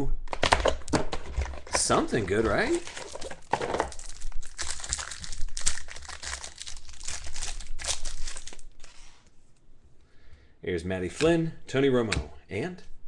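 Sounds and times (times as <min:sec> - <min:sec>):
plastic wrapper crinkling and tearing: 0:00.3 - 0:09.3.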